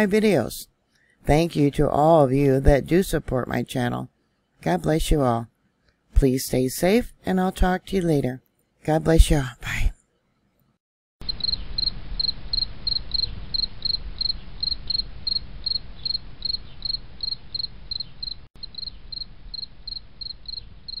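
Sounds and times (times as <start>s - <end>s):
cricket chirping: 11.2s - 21.0s.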